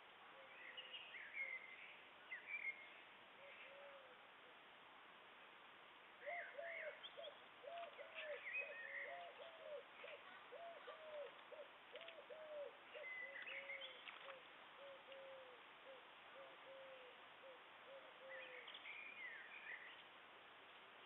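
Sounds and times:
small birds chirping: 0.3 - 4.2, 6.2 - 21.0
bird hooting: 3.4 - 4.2, 6.2 - 19.2.

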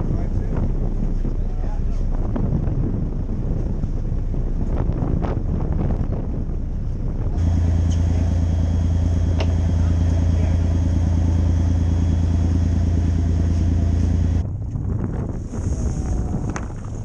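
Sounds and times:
wind on microphone: 0.0 - 17.0
boat engine humming: 6.5 - 14.8
water noise: 6.8 - 17.0.

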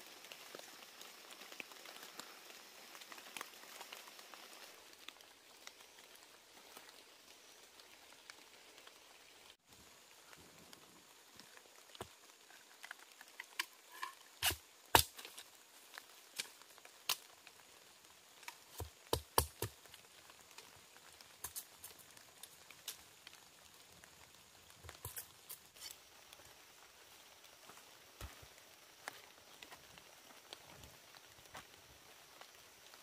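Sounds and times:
dry bamboo and twigs snapping: 9.8 - 26.5.

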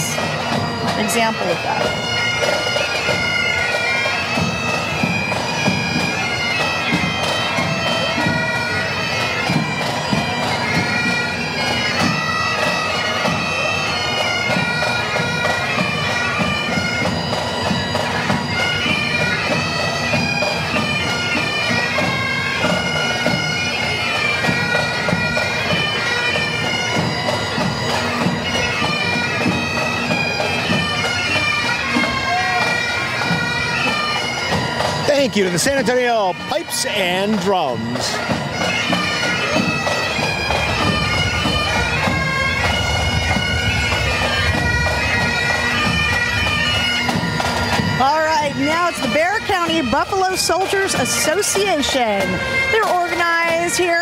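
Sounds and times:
bagpipes playing a tune: 0.0 - 54.0
drums beating: 0.0 - 54.0.

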